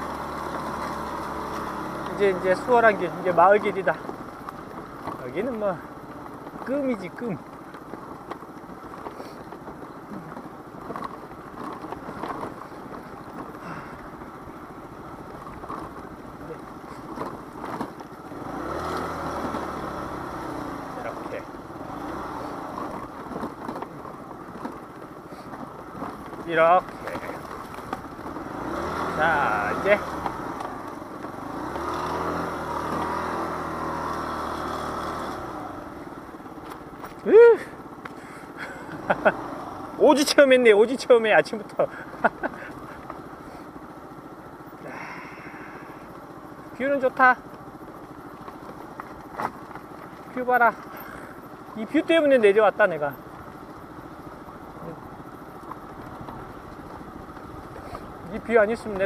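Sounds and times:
small scooter engine: 0:00.0 - 0:59.0
tyres rumbling on rough road: 0:00.0 - 0:59.0
small knocks from road surface: 0:00.4 - 0:13.8, 0:15.2 - 0:21.4, 0:22.1 - 0:29.2, 0:29.9 - 0:35.9, 0:47.4 - 0:51.3.

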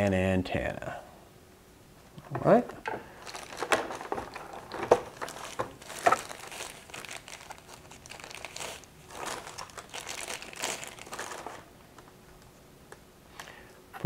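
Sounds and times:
plastic bag crinkling: 0:02.9 - 0:11.8.

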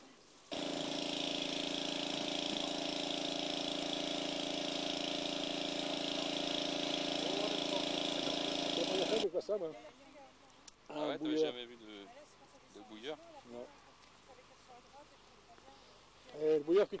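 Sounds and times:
small engine idling: 0:00.5 - 0:09.3.

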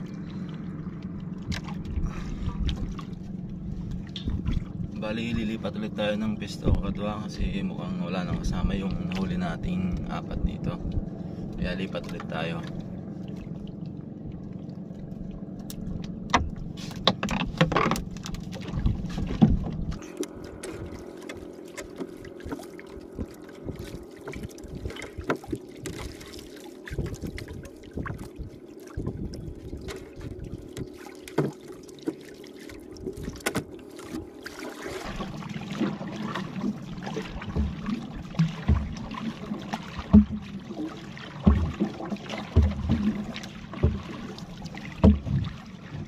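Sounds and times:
boat engine hum: 0:00.0 - 0:46.0
knocks and clatter on board: 0:16.3 - 0:20.0, 0:23.2 - 0:26.0, 0:30.8 - 0:32.2, 0:37.4 - 0:39.4, 0:40.0 - 0:40.6, 0:41.4 - 0:44.2, 0:45.0 - 0:45.6.

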